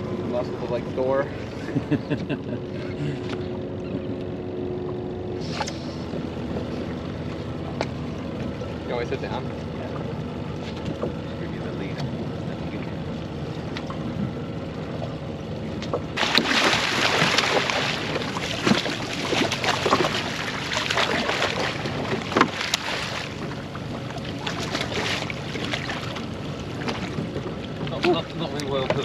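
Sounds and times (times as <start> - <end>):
fish thrashing and splashing water: 16.2 - 28.4.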